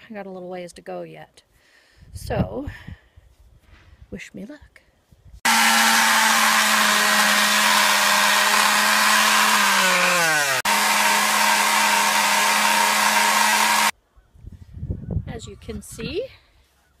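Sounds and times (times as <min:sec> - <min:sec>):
electric palm sander sanding wood: 0:05.4 - 0:13.9.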